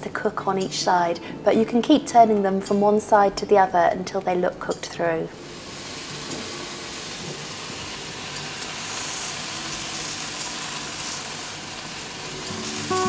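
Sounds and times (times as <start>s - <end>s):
pancakes sizzling in a pan: 5.5s - 13.0s.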